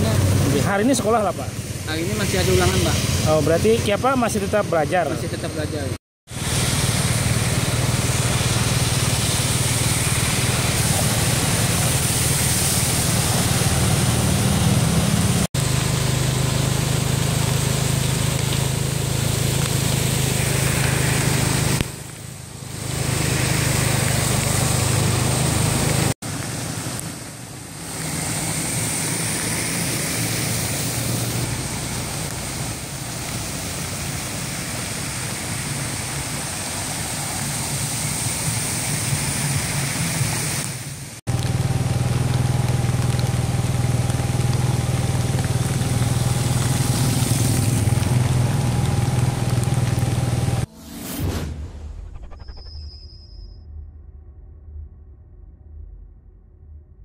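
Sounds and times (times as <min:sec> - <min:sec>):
steady rushing noise: 0:00.0 - 0:15.6
car engines running: 0:00.0 - 0:50.7
tyres splashing through water: 0:06.3 - 0:50.7.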